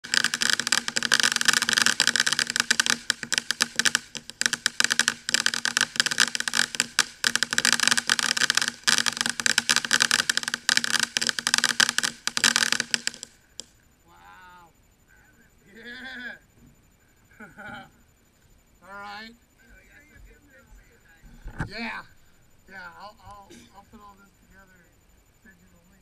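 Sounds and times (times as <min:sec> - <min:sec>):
firework fountain crackling: 0:00.0 - 0:13.8
firework fountain hissing: 0:00.0 - 0:13.8.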